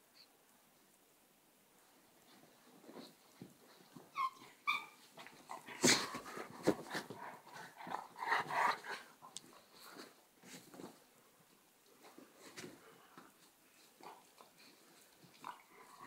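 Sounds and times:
dogs scuffling and mouthing: 2.2s - 16.0s
dog yelps: 4.1s - 5.0s.

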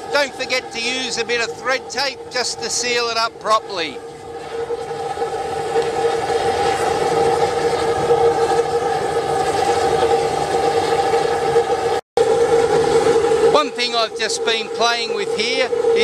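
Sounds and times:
oil burner flame roaring: 0.0s - 16.0s
steady droning tone: 0.0s - 16.0s.

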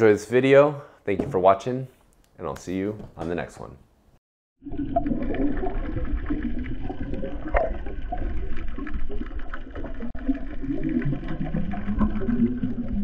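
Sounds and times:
underwater rushing and bubbles: 4.6s - 13.0s.

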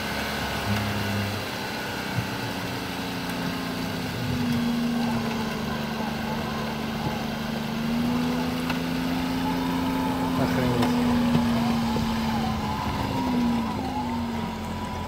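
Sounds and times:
vehicle engine running: 0.0s - 15.0s
winch mechanical hum: 3.1s - 15.0s.

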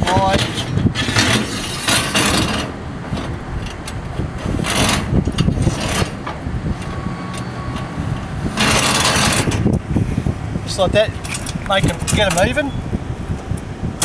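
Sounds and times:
metal scraping and clicking: 0.0s - 9.8s, 11.2s - 12.6s.

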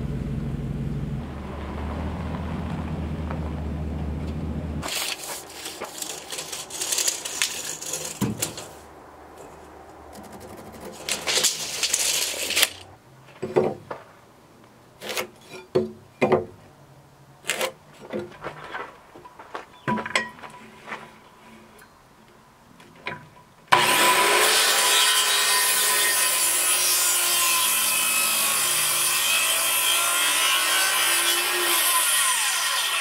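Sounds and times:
timber beams scraping: 1.2s - 14.3s, 17.4s - 21.9s
tape measure clicks and knocks: 4.8s - 8.7s.

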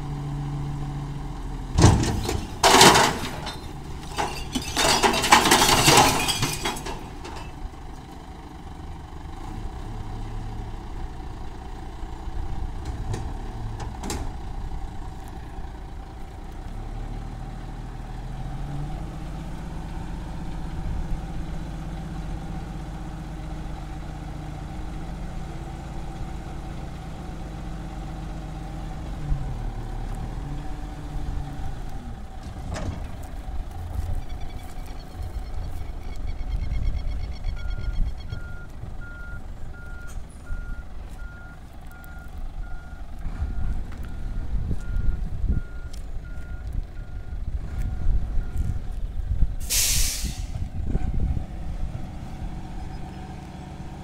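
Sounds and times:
garbage truck diesel engine: 0.0s - 54.0s
rubbish clattering into hopper: 1.8s - 7.6s.

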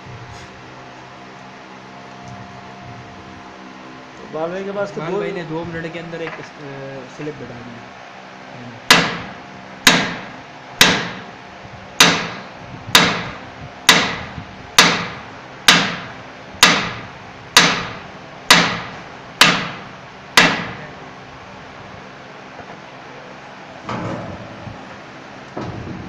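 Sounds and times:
hammer striking steel: 8.9s - 11.2s, 12.0s - 17.0s, 17.6s - 20.8s.

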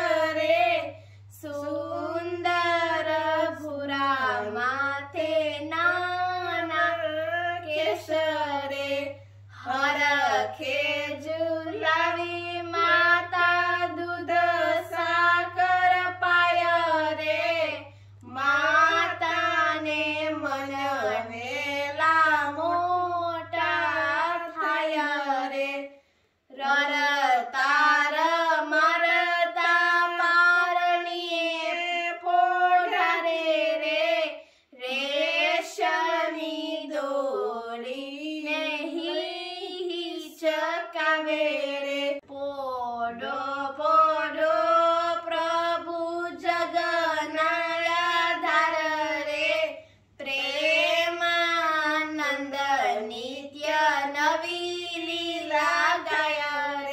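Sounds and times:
girl singing unaccompanied: 0.0s - 25.9s, 26.5s - 56.9s.

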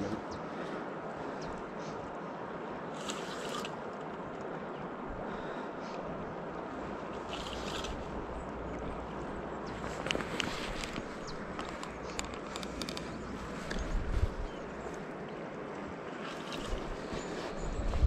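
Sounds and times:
river water rushing: 0.5s - 13.7s.

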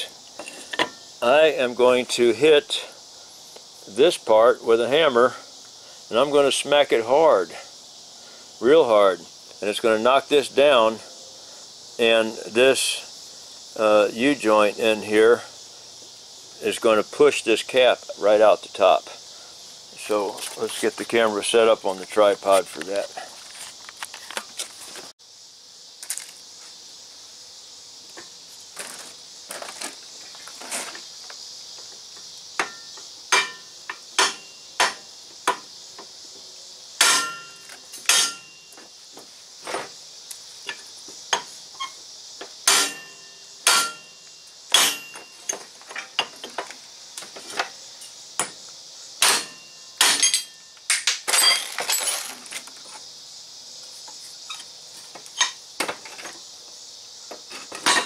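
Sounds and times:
hammer striking metal: 32.6s - 35.0s, 37.0s - 38.6s, 42.7s - 45.3s, 49.2s - 51.1s.

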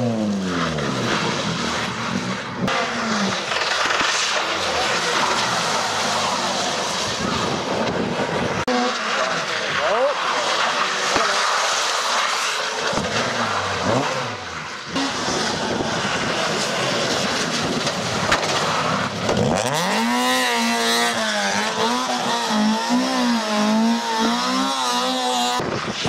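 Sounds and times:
rally car engine at high revs: 0.0s - 26.0s
tyres hissing on wet road: 0.6s - 7.5s, 8.6s - 19.3s.

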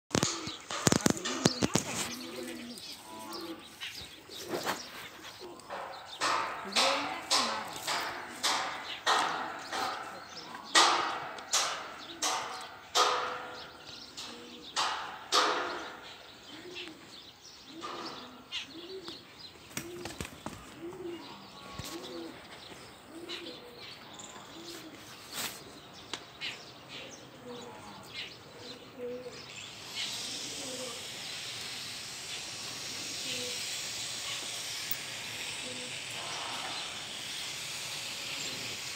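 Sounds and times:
bird cooing: 0.1s - 25.4s, 26.4s - 31.2s, 32.8s - 34.6s, 35.4s - 37.1s
steady hiss: 29.4s - 38.9s.

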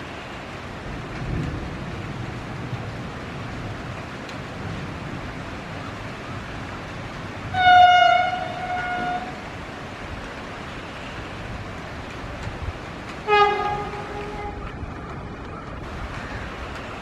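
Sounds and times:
train horn blasts: 7.5s - 9.4s, 13.2s - 14.7s.

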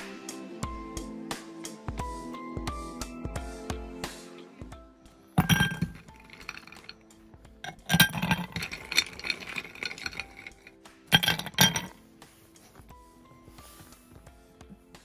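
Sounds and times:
ice cubes clinking in a glass: 5.4s - 7.0s, 7.7s - 11.9s.

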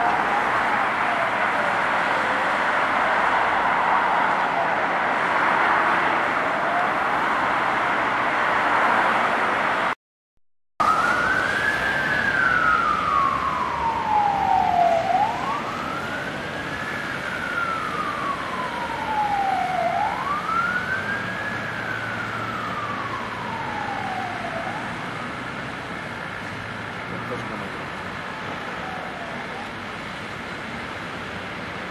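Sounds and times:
road traffic: 0.0s - 10.0s, 10.8s - 31.9s
electronic siren wailing: 10.8s - 25.0s.

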